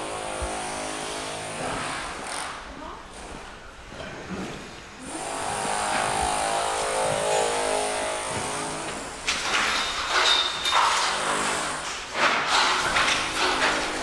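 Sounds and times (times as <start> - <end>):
harsh noisy clatter: 5.0 - 14.0.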